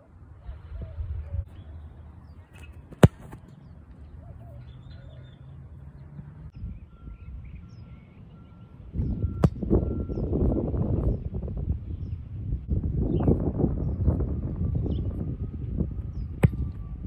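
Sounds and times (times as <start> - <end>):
football kicked with a thud: 2.6 - 3.5, 16.4 - 16.6
faint bird chirps: 6.6 - 10.3
gusting wind on microphone: 8.9 - 17.0.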